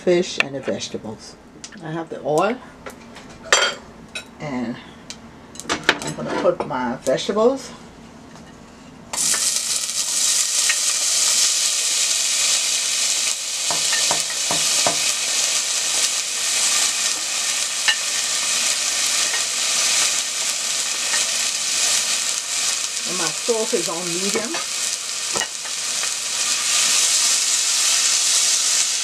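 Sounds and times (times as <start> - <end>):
vegetables sizzling in hot oil: 9.2 - 29.0.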